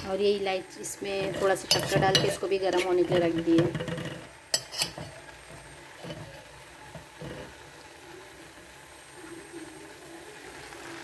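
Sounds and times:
faint background noise: 0.0s - 11.0s
utensil clinking on metal pot: 1.1s - 7.5s.

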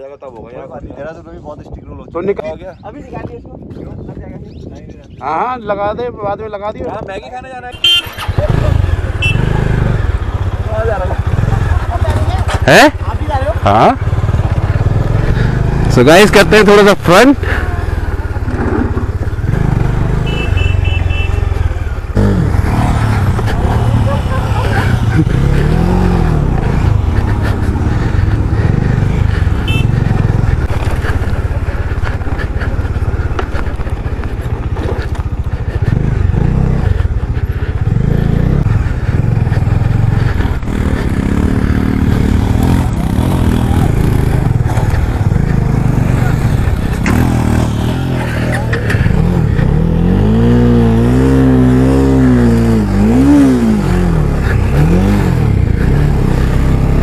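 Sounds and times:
motorcycle engine revving: 7.7s - 57.0s.

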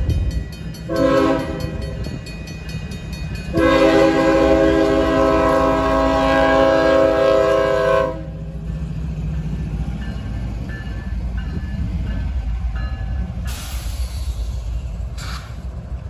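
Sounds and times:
wheels on rails: 0.0s - 5.9s
locomotive engine rumble: 0.0s - 16.0s
locomotive air horn: 0.9s - 1.9s, 3.5s - 8.4s
burst of hiss: 13.5s - 15.7s.

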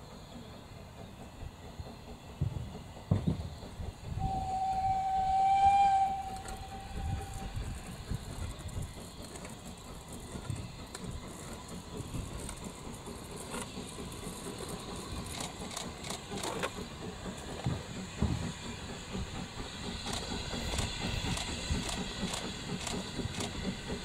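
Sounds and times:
steam hissing: 0.0s - 24.0s
locomotive low rumble: 0.3s - 24.0s
steam locomotive whistle: 4.1s - 8.1s.

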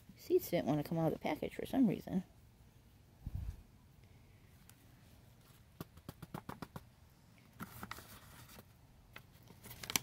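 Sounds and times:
paper seed packet crinkling: 7.5s - 10.0s.

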